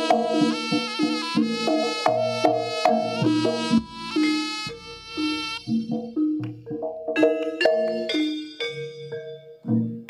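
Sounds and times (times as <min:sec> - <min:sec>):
reedy nasal wind melody: 0:00.0 - 0:06.2
struck gamelan notes: 0:00.0 - 0:10.0.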